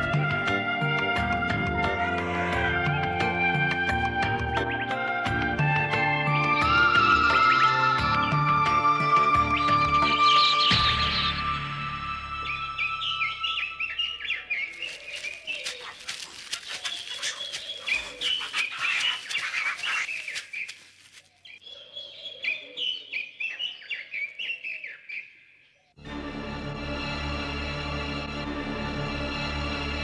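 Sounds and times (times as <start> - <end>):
music: 0.0 - 14.0, 26.0 - 30.0
small birds chirping: 12.4 - 26.0.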